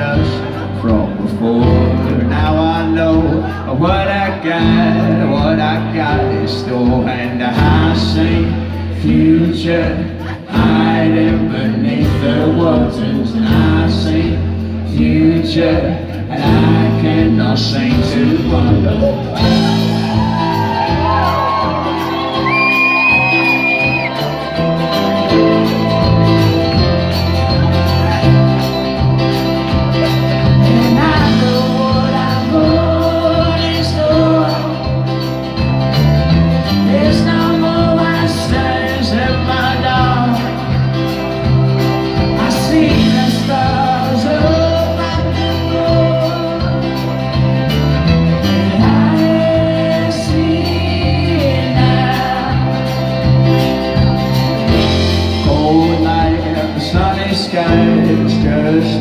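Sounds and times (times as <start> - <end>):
bass guitar: 0.0 - 59.0
electric guitar: 0.0 - 59.0
electric keyboard: 0.0 - 59.0
acoustic guitar strumming: 16.4 - 59.0.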